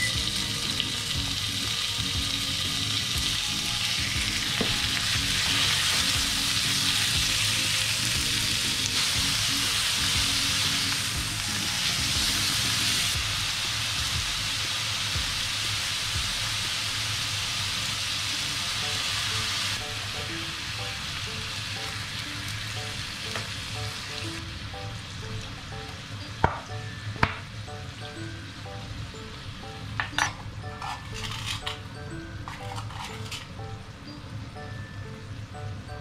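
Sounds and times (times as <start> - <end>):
meat sizzling in a frying pan: 0.0 - 26.5.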